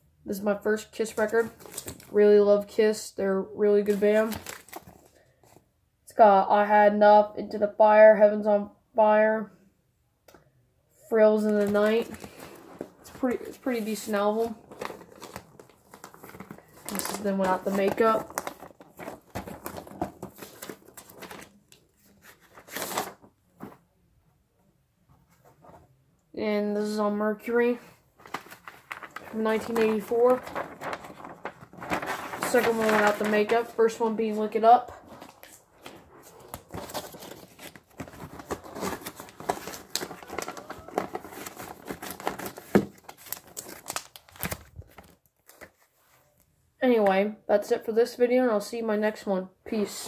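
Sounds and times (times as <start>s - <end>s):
paper sleeve rustling: 11.4s - 23.8s, 28.2s - 46.3s
plastic sleeve crinkling: 11.5s - 23.8s, 28.2s - 45.8s.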